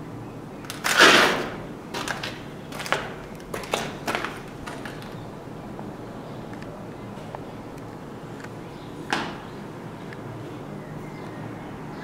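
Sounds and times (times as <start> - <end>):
footsteps scuffing on gritty floor: 2.0 - 5.2.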